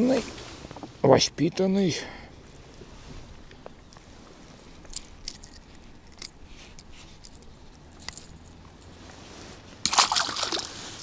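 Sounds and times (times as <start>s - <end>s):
fishing tackle clicks and rustles: 2.4s - 11.0s.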